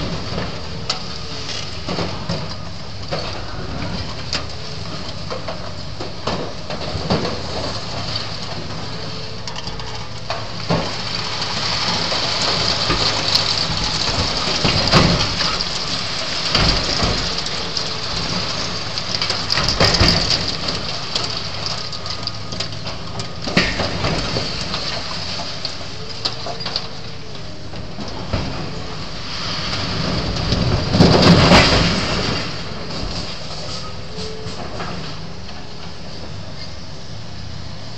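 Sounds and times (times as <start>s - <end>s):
diesel engine running: 0.0s - 37.9s
cracks and knocks of structure: 5.3s - 8.3s, 9.5s - 27.0s, 30.0s - 33.4s.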